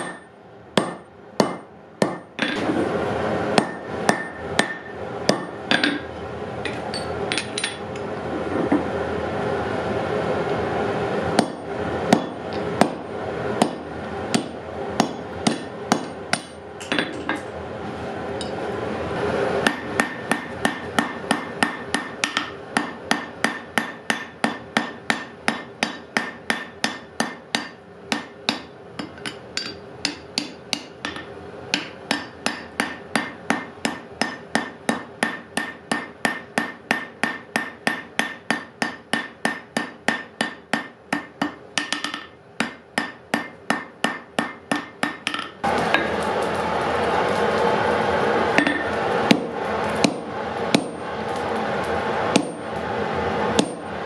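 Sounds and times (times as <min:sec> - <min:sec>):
hammer striking iron on anvil: 0:00.0 - 0:02.6, 0:03.5 - 0:06.1, 0:11.4 - 0:17.5, 0:19.6 - 0:46.3, 0:48.5 - 0:51.1, 0:52.3 - 0:52.8, 0:53.5 - 0:54.0.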